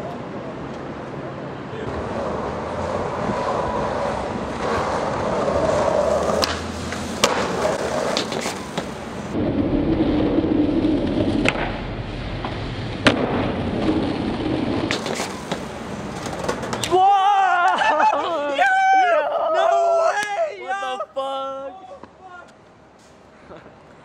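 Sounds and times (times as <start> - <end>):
skateboard wheels rolling on concrete: 0.0 - 24.0
skateboard clacking on ground: 4.6 - 9.4, 10.9 - 17.0.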